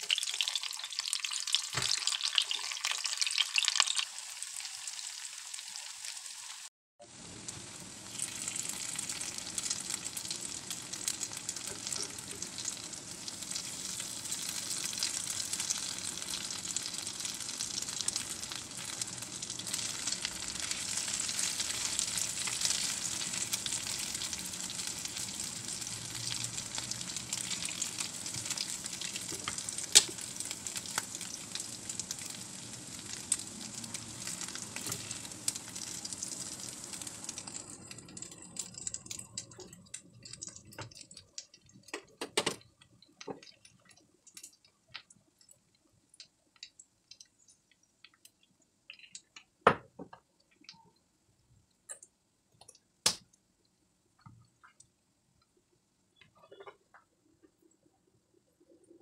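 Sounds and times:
oil sizzling in a pan: 0:00.0 - 0:42.0.

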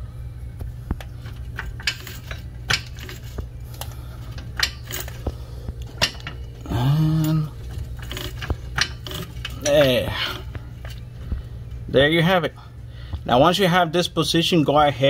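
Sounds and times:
low hum: 0:00.0 - 0:14.7
metallic clicks and clinks: 0:04.3 - 0:10.0.

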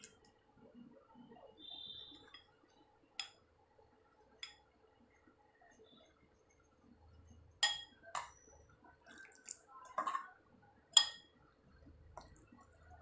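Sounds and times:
spoon stirring thick batter: 0:00.0 - 0:13.0
spoon clinking against glass: 0:07.6 - 0:08.4, 0:10.0 - 0:10.3, 0:11.0 - 0:11.3.

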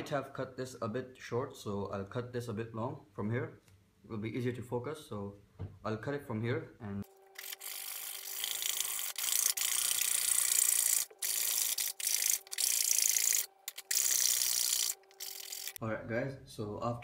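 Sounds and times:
saw cutting cardboard tube: 0:07.2 - 0:15.8.

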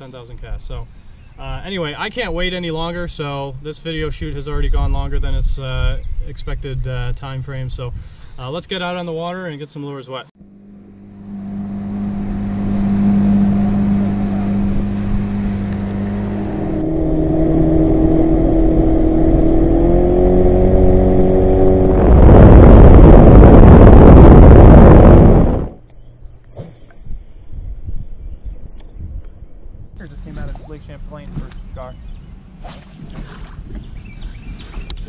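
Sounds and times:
outboard motor running: 0:10.4 - 0:27.0
wind and water rushing: 0:10.6 - 0:25.8.

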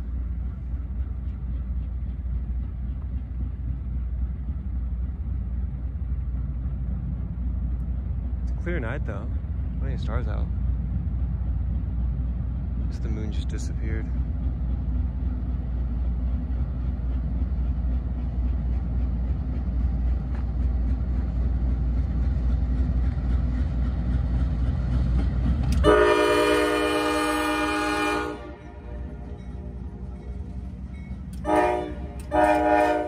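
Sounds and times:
train rumbling past: 0:00.0 - 0:33.0
locomotive air horn: 0:25.8 - 0:29.2, 0:31.4 - 0:33.0.

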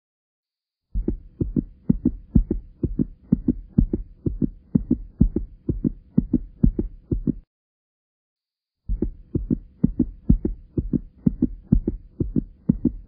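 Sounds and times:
paired low thumps: 0:01.0 - 0:07.5, 0:08.9 - 0:13.0.

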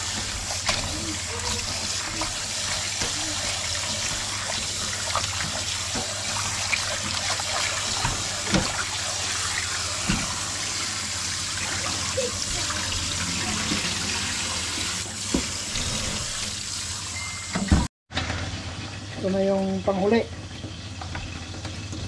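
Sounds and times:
hands swishing fish in water: 0:00.0 - 0:09.0
tap running into metal bowl: 0:00.1 - 0:09.1, 0:10.0 - 0:10.5.

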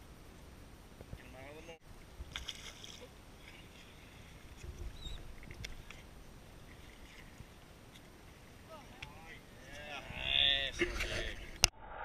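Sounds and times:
water noise: 0:00.0 - 0:12.0
wind: 0:00.0 - 0:12.0
faint high squeaks: 0:04.6 - 0:05.3.

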